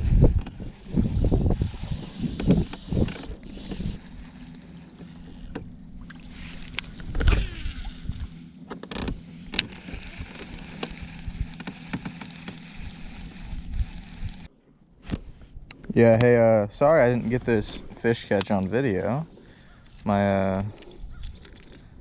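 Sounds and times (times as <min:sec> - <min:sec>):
electric motor humming: 0:00.0 - 0:14.5.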